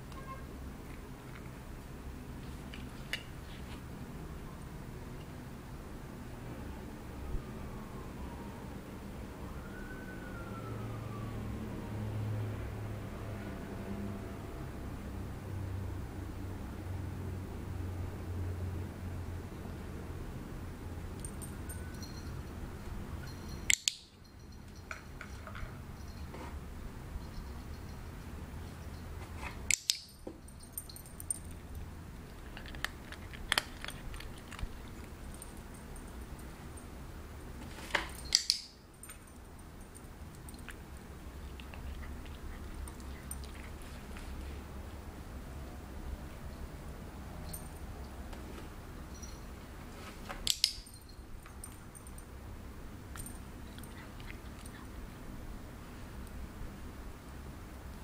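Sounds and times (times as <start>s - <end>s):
low steady hum: 0.0s - 58.0s
dog nails clicking on tile: 23.6s - 24.2s, 29.6s - 30.2s, 38.2s - 38.7s.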